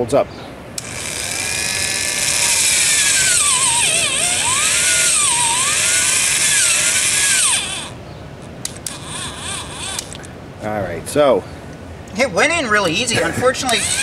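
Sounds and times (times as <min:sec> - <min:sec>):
electric drill boring into wood: 0:00.8 - 0:08.0, 0:08.7 - 0:10.2, 0:13.6 - 0:14.0.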